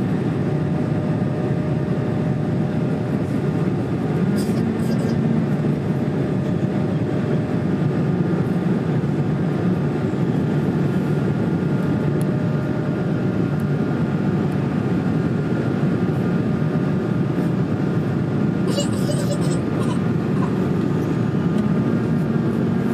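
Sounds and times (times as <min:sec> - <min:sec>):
jet engine rumble in cabin: 0:00.0 - 0:22.9
faint steady whine: 0:08.8 - 0:22.9.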